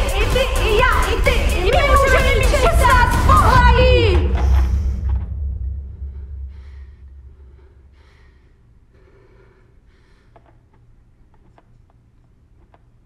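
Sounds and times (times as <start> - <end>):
person breathing hard: 4.2 - 10.7.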